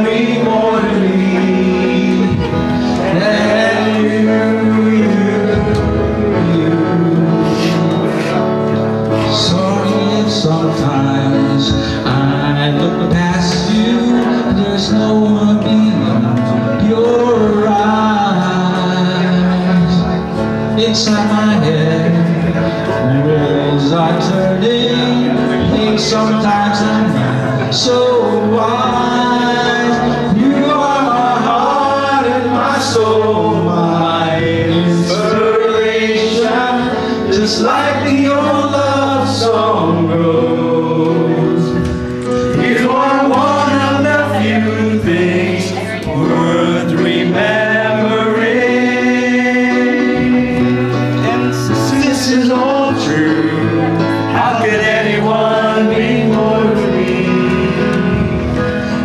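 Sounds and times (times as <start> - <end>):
group of men singing: 0.0 - 59.0
instrumental accompaniment: 0.0 - 59.0
man singing into a microphone: 0.0 - 59.0.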